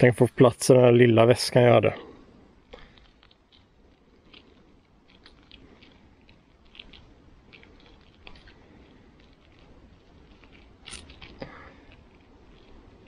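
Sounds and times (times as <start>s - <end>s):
wire being coiled by hand: 2.7s - 13.0s.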